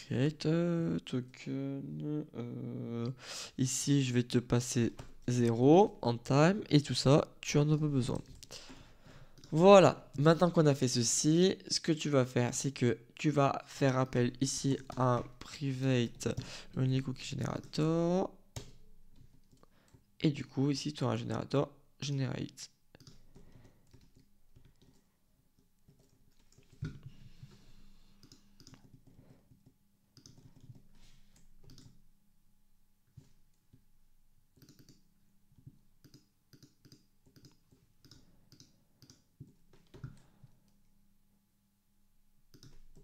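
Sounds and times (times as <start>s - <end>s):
keyboard typing clicks: 28.2s - 32.0s, 34.6s - 35.0s, 36.0s - 40.3s, 42.5s - 43.0s.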